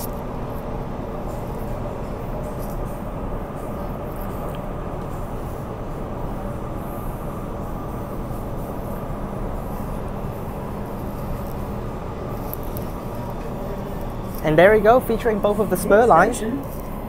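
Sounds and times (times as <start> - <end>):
constant electric hum: 0.0 - 17.0
train wheels rumbling on rails: 0.0 - 17.0.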